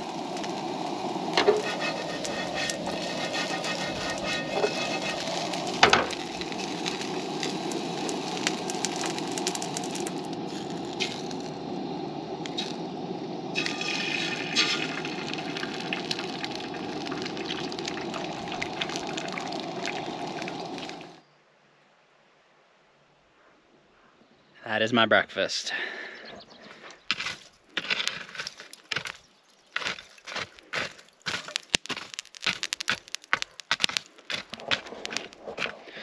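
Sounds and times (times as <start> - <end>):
gas burner roar: 0.0 - 21.2
potatoes sizzling in a frying pan: 0.0 - 21.2, 29.8 - 35.7.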